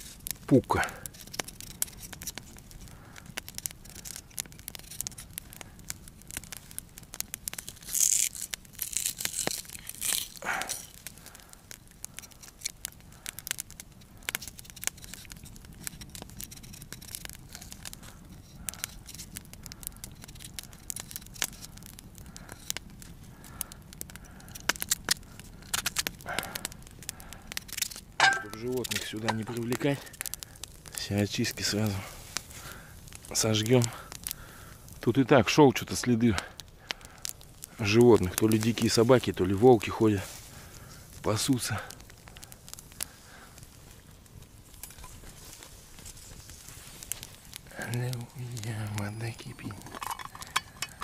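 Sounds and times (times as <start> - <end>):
knife scraping potato skin: 7.9 - 10.4.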